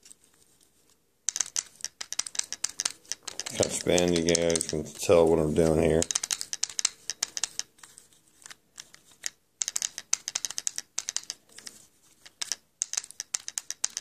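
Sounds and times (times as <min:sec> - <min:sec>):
fine irregular clicks of wheel: 0:01.3 - 0:04.8, 0:08.4 - 0:14.0.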